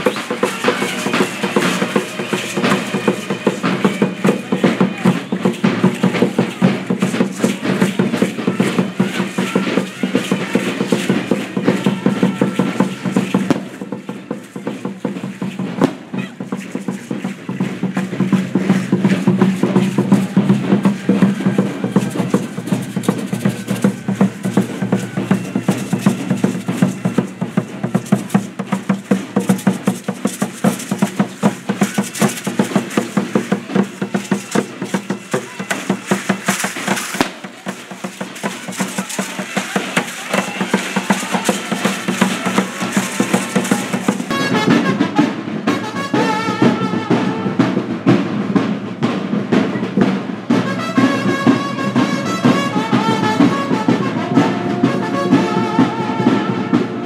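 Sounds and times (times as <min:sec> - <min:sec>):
shaking rattles: 0:00.0 - 0:44.6
fast steady drumbeat: 0:00.0 - 0:57.0.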